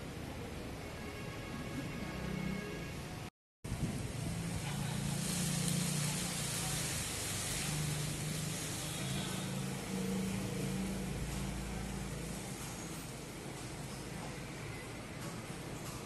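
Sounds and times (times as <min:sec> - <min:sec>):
traffic hiss: 0:03.7 - 0:14.8
vehicle engine hum: 0:03.7 - 0:14.8.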